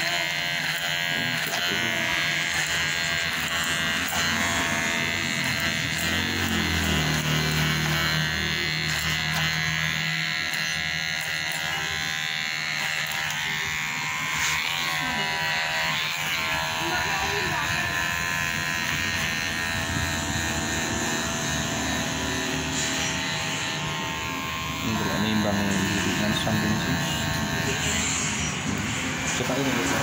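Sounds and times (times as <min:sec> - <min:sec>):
electric hair clipper buzzing: 0:00.0 - 0:30.0.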